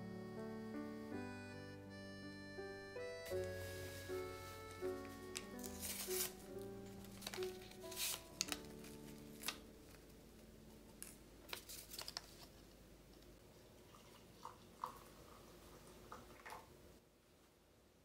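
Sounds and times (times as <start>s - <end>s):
paper rustling: 3.3s - 12.8s.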